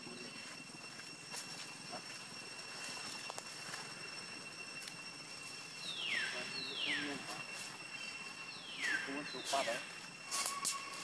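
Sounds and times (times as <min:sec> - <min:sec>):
thin high tones: 0:00.0 - 0:11.0.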